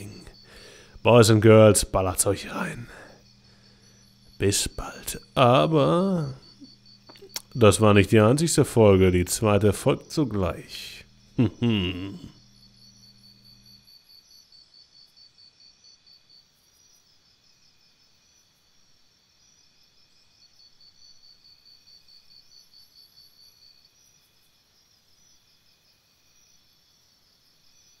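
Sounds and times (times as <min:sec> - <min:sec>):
insects chirping in pulsed trills: 0:00.0 - 0:28.0.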